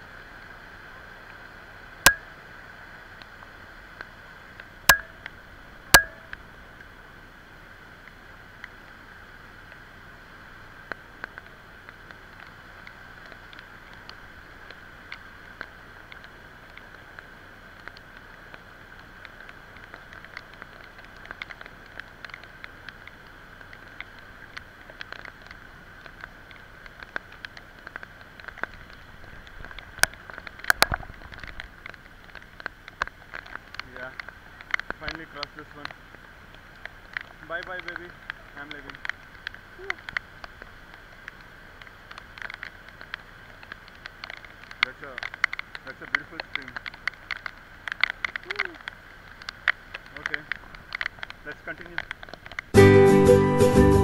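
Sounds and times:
stream rushing over rocks: 0:00.0 - 0:52.8
light ticks: 0:02.0 - 0:02.3, 0:03.2 - 0:06.9, 0:10.6 - 0:52.8
sharp knocks: 0:06.0 - 0:06.3.

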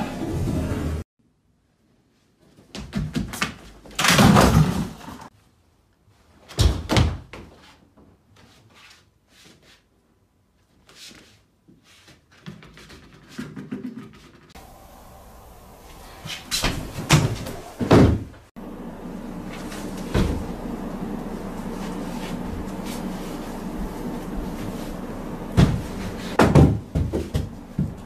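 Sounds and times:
costume thudding against bar and mats: 0:25.6 - 0:28.0.

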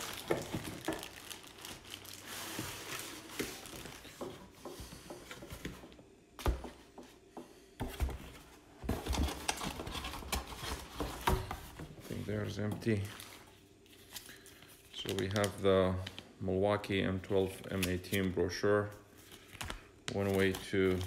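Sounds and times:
cardboard and plastic rustling: 0:00.0 - 0:06.0, 0:07.8 - 0:16.3, 0:19.2 - 0:21.0.

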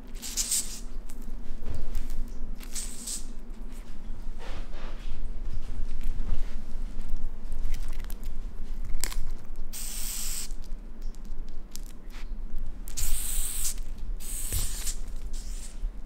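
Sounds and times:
cockroach hissing: 0:00.2 - 0:00.9, 0:02.7 - 0:03.3, 0:09.7 - 0:10.6, 0:13.0 - 0:15.8.

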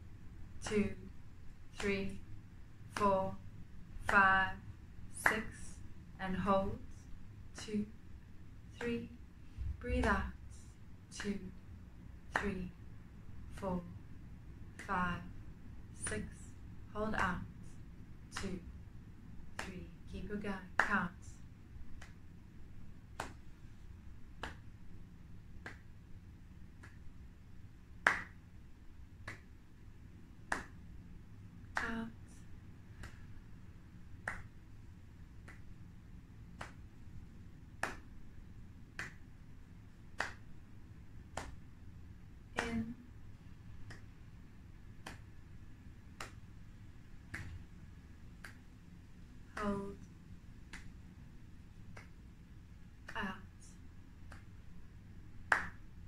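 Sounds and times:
finger snaps: 0:22.0 - 0:22.2, 0:23.1 - 0:23.4, 0:25.6 - 0:25.9, 0:26.7 - 0:27.2, 0:28.0 - 0:28.4, 0:29.2 - 0:29.5, 0:30.5 - 0:30.8, 0:31.7 - 0:33.4, 0:34.2 - 0:34.6, 0:35.4 - 0:35.7, 0:36.5 - 0:36.9, 0:37.8 - 0:38.1, 0:39.0 - 0:39.2, 0:40.2 - 0:40.5, 0:41.3 - 0:41.6, 0:43.8 - 0:44.1, 0:45.0 - 0:45.3, 0:46.2 - 0:46.4, 0:47.3 - 0:47.6, 0:48.4 - 0:48.6, 0:49.5 - 0:51.0, 0:51.9 - 0:52.2, 0:53.0 - 0:54.6, 0:55.5 - 0:55.8.

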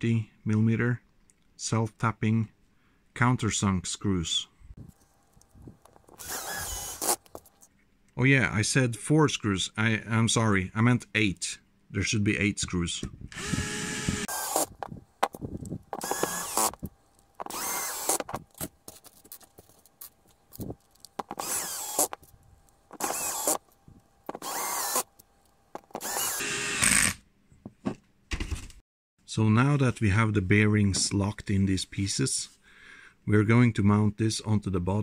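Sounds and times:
cordless drill whirring: 0:05.9 - 0:07.3, 0:13.3 - 0:18.5, 0:20.6 - 0:22.3, 0:22.9 - 0:23.7, 0:24.3 - 0:25.2, 0:25.8 - 0:27.2.

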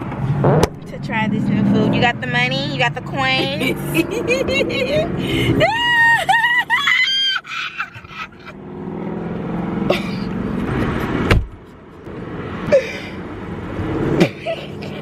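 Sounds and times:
car cabin engine idling hum: 0:00.0 - 0:05.1.

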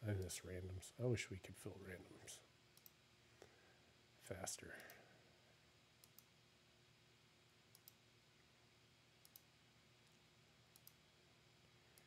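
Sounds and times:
low room hiss: 0:00.0 - 0:12.0
computer mouse clicks: 0:02.8 - 0:03.0, 0:06.0 - 0:06.3, 0:07.7 - 0:08.0, 0:09.2 - 0:11.0.

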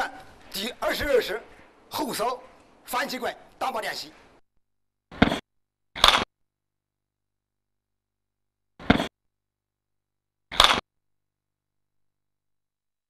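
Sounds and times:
staff striking a target: 0:10.5 - 0:10.8.

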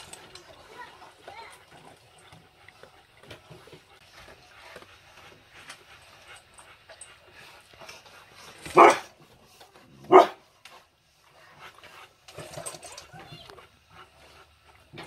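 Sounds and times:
dog woof: 0:10.1 - 0:10.4.

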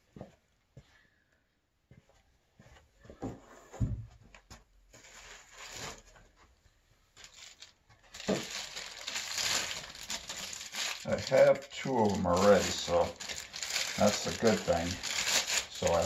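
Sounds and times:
plastic packaging rustling: 0:05.0 - 0:06.2, 0:07.2 - 0:16.0.

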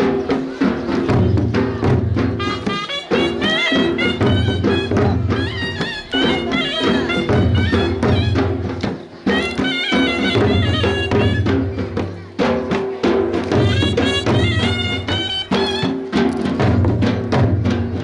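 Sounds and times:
dhol drum beating rhythm: 0:00.0 - 0:18.0
shehnai playing ornamented melody: 0:02.4 - 0:08.6, 0:09.2 - 0:11.6, 0:13.6 - 0:16.1.

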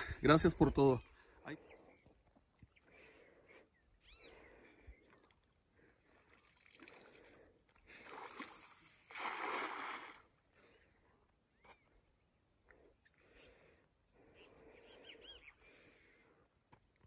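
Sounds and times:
cast net splashing into water: 0:08.0 - 0:10.3.

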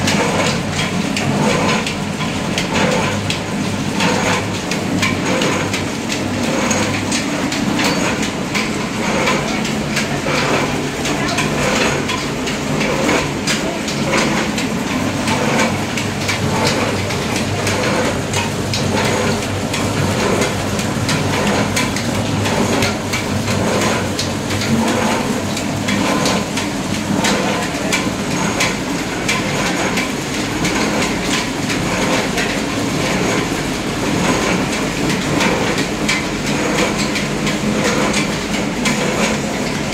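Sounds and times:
oil press machine clattering: 0:00.0 - 0:39.9.

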